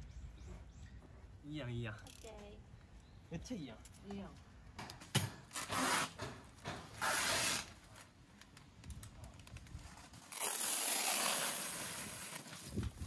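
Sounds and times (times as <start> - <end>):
plastic wrapping tearing: 7.0 - 7.8, 9.6 - 12.8.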